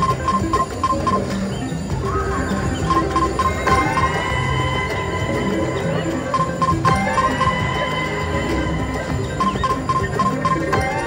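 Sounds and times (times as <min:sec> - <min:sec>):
short electronic beeps: 0:00.0 - 0:11.0
slot machine game music: 0:00.0 - 0:11.0
rising electronic tone: 0:01.9 - 0:11.0.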